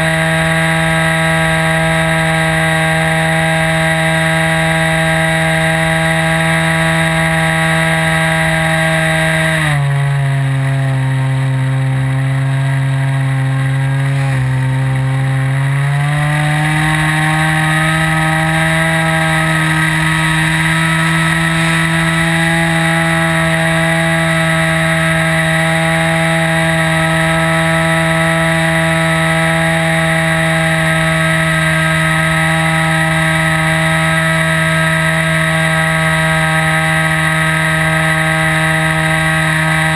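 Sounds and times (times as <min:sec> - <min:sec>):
model plane engine and propeller: 0:00.0 - 0:39.9.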